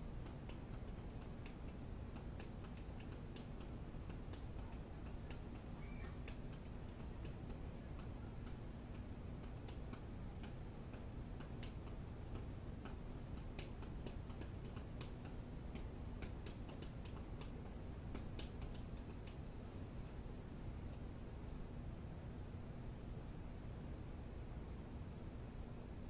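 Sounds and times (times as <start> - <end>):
light ticking clicks: 0.0 - 19.5
faint low hum: 0.0 - 26.0.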